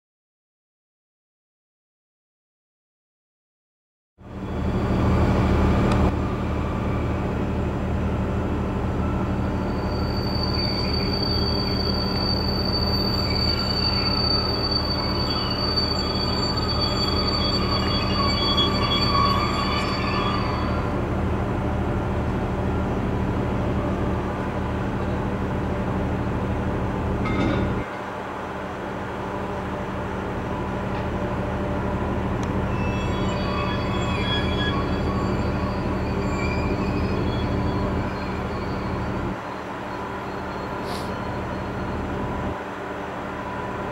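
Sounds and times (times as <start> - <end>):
train wheels squealing: 4.3 - 21.1, 30.5 - 42.7.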